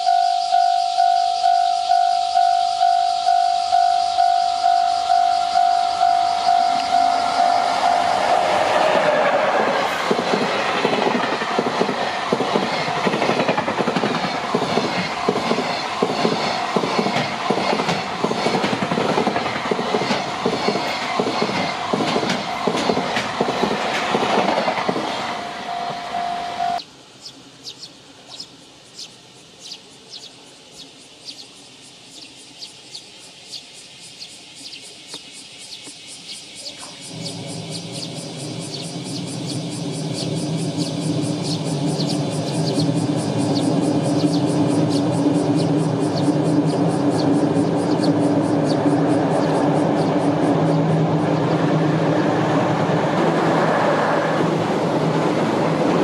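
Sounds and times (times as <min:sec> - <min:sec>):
steady high tone: 0:00.0 - 0:19.1, 0:25.2 - 0:26.8
freight train rumbling: 0:00.0 - 0:26.8, 0:36.6 - 0:56.0
wheel clatter over rail joints: 0:06.8 - 0:25.5.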